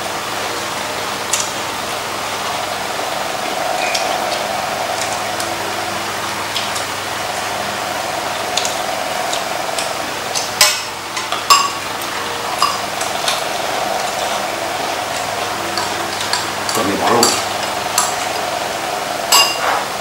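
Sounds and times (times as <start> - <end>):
electric fan humming: 0.0 - 20.0
chopsticks and spoons clinking bowls: 10.4 - 11.8, 12.6 - 13.4, 15.7 - 18.4, 19.3 - 19.8.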